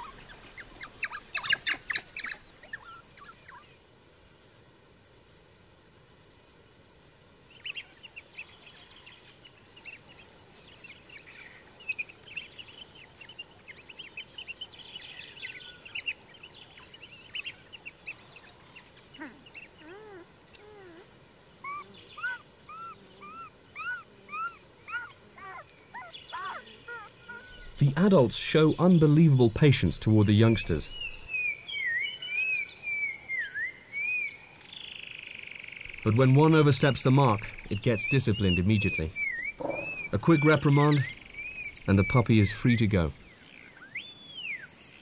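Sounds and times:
wild dogs twittering and squeaking: 0:00.0 - 0:03.8, 0:15.5 - 0:28.7, 0:30.4 - 0:31.4, 0:37.1 - 0:42.4.

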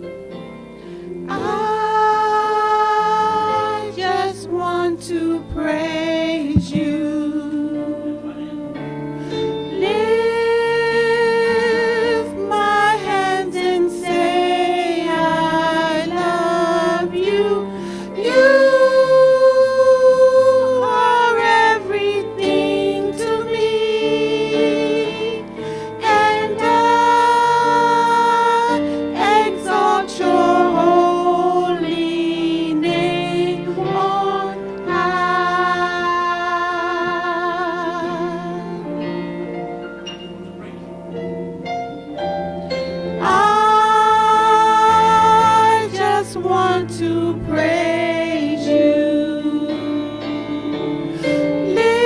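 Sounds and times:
electric keyboard: 0:00.0 - 0:52.0
women singing gospel song: 0:01.3 - 0:08.8, 0:09.4 - 0:39.5, 0:43.2 - 0:52.0.

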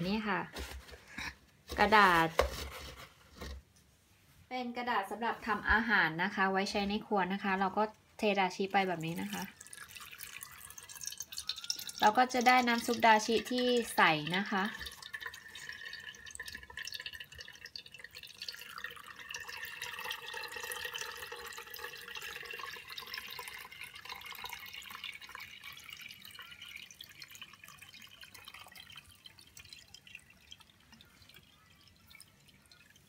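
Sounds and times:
liquid trickling through sieve: 0:08.2 - 0:33.0.

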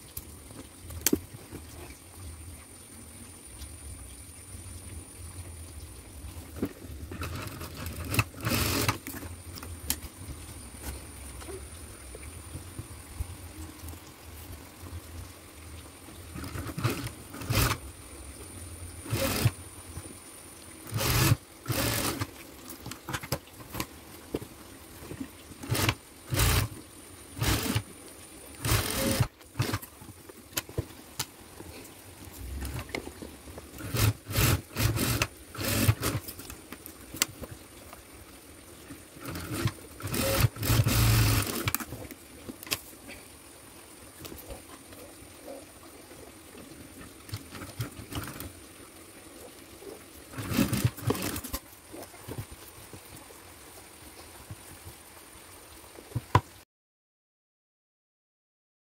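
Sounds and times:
sewing machine stitching: 0:07.1 - 0:09.1, 0:16.4 - 0:17.8, 0:19.0 - 0:19.6, 0:20.8 - 0:22.3, 0:25.6 - 0:26.8, 0:27.4 - 0:27.9, 0:28.6 - 0:29.9, 0:33.8 - 0:36.3, 0:39.2 - 0:41.8, 0:47.3 - 0:48.5, 0:50.3 - 0:51.6.

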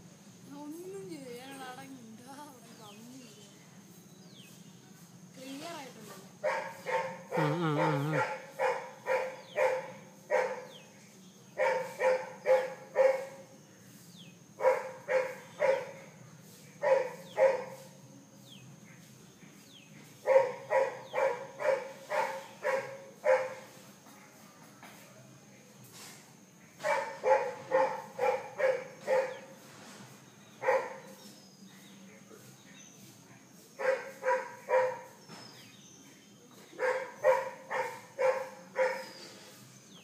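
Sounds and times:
dog barking: 0:06.4 - 0:10.9, 0:11.6 - 0:13.5, 0:14.6 - 0:16.2, 0:16.8 - 0:18.0, 0:20.2 - 0:23.8, 0:26.8 - 0:29.6, 0:30.6 - 0:31.2, 0:33.8 - 0:35.2, 0:36.7 - 0:39.2.

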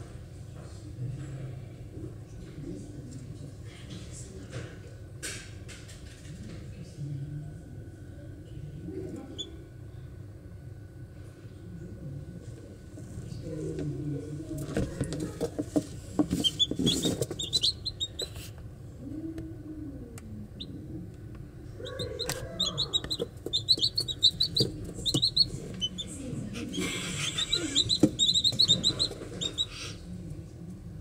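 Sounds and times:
chicks peeping: 0:09.3 - 0:09.6, 0:15.1 - 0:18.6, 0:20.4 - 0:20.9, 0:21.6 - 0:30.1.

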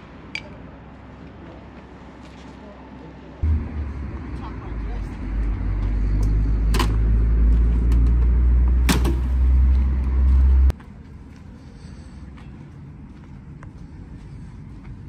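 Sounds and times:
vehicle engine idling: 0:03.4 - 0:10.7.

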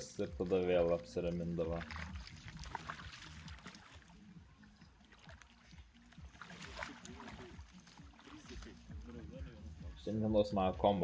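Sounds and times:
person wading in water: 0:01.5 - 0:09.9.

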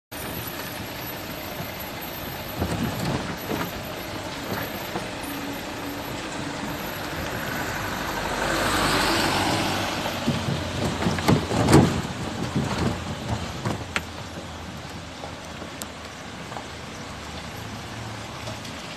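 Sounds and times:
engine and road rumble: 0:00.1 - 0:18.9
rushing road noise: 0:00.1 - 0:18.9
pothole knocks and rattles: 0:10.1 - 0:15.8.

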